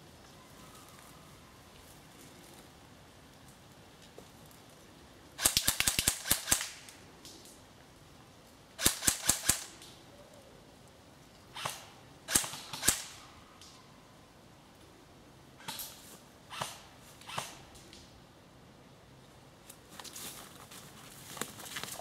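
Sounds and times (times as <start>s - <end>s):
airsoft rifle shots: 5.4s - 6.9s, 8.8s - 9.8s, 11.6s - 13.2s.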